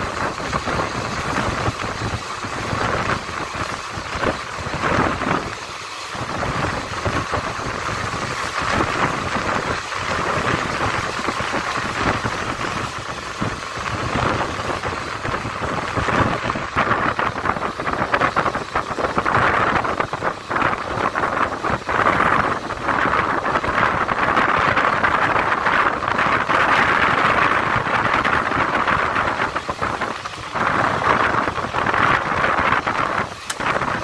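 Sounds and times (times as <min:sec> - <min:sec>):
train wheels rushing on rails: 0:00.0 - 0:34.0.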